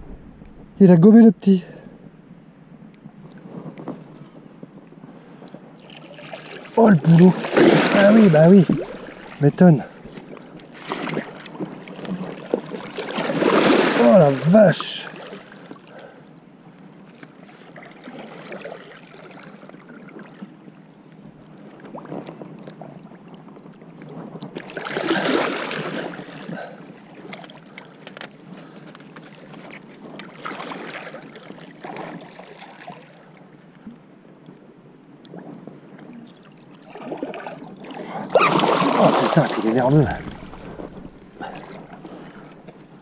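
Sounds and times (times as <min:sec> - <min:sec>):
fish thrashing in shallow water: 0:05.8 - 0:14.4, 0:24.5 - 0:26.5, 0:36.8 - 0:43.0.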